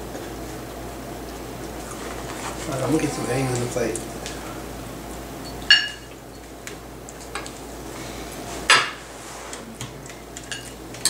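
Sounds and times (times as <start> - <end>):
metal forks clinking on plates: 5.4 - 6.4, 10.4 - 11.0.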